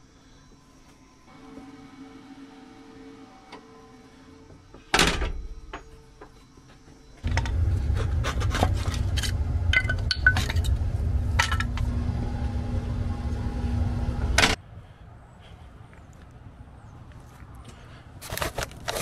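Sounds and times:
low rumble and hum: 0:07.2 - 0:14.6.

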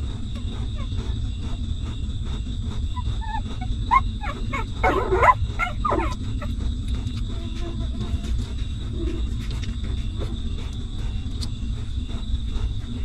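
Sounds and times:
puppies whimpering and squeaking: 0:00.4 - 0:01.7, 0:02.7 - 0:09.2.

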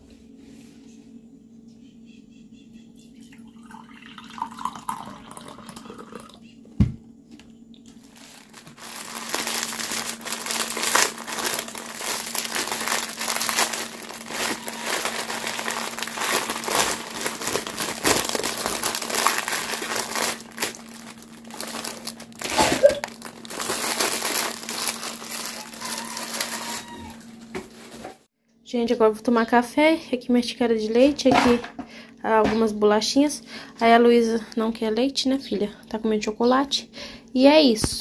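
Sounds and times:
steady low hum: 0:00.0 - 0:25.5
plastic packaging crinkling: 0:07.9 - 0:28.0.

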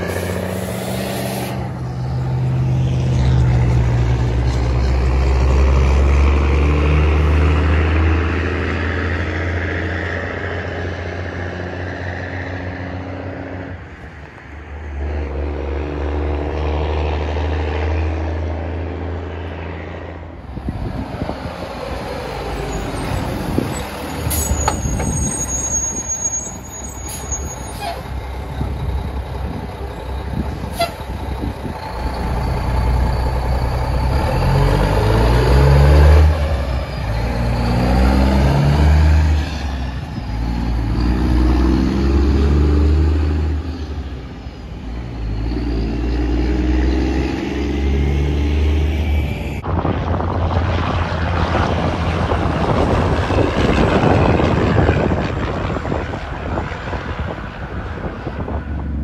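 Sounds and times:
diesel truck engines accelerating: 0:00.0 - 0:59.0
truck passing at speed: 0:00.0 - 0:59.0.

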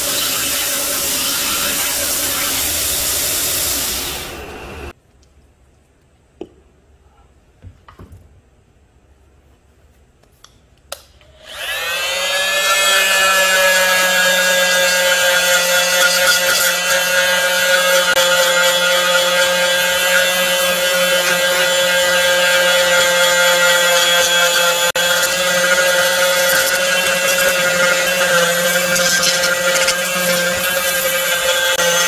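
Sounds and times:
grinder motor running: 0:11.5 - 0:32.0.

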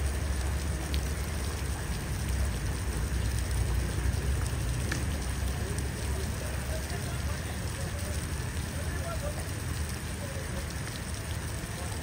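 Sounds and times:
faint ticks: 0:04.4 - 0:05.9.

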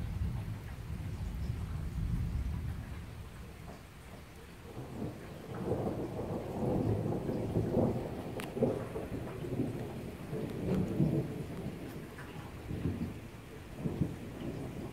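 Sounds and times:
rolling thunder: 0:00.0 - 0:14.9
steady rain: 0:00.0 - 0:14.9.

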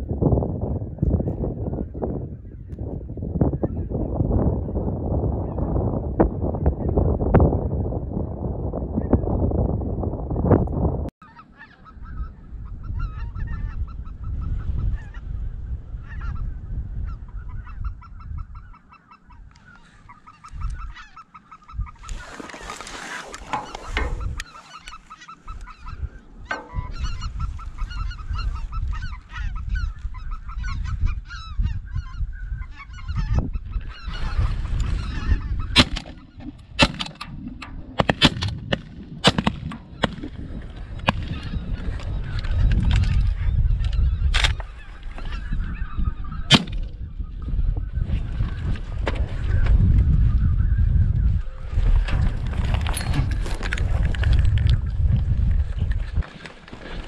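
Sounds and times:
geese honking: 0:11.2 - 0:15.2, 0:16.0 - 0:38.3, 0:39.3 - 0:48.6
sharp cracks: 0:35.8 - 0:41.5, 0:46.5 - 0:47.0.

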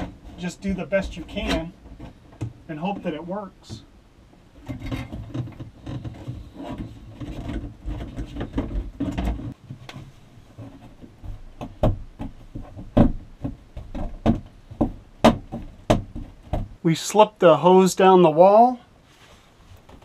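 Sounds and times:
plastic hose rubbing and scraping: 0:00.0 - 0:03.8, 0:04.5 - 0:16.7
sharp knocks and clicks: 0:10.6 - 0:16.8.

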